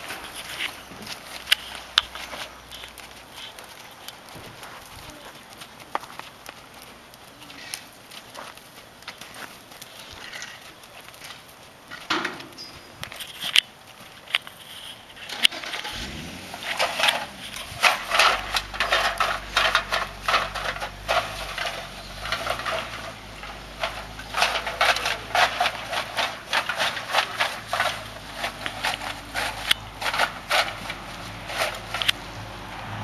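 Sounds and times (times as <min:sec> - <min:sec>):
low engine hum: 0:15.9 - 0:24.8, 0:27.6 - 0:33.0.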